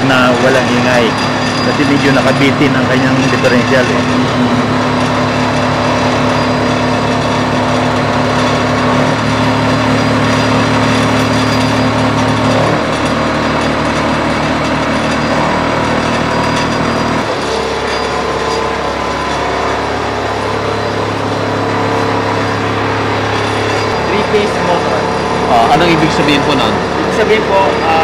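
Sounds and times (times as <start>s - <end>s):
people speaking: 0.0s - 4.7s, 24.1s - 28.0s
electric motor whine and rumble: 0.0s - 28.0s.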